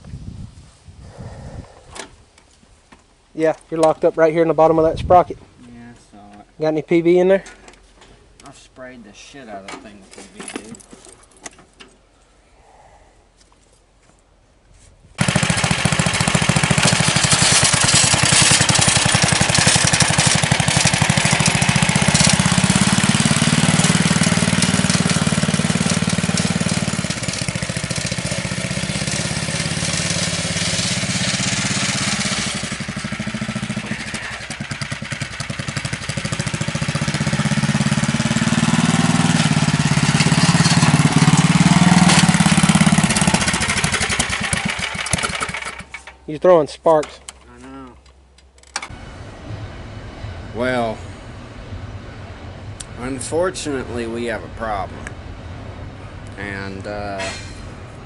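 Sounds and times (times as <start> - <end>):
small engine running hard: 15.2 - 46.0
high-pitched grinding: 15.3 - 34.6.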